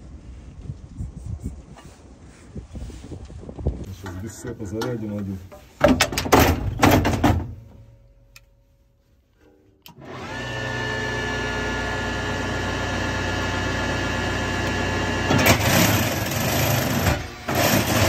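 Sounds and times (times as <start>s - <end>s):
small motor whining: 9.9s - 18.0s.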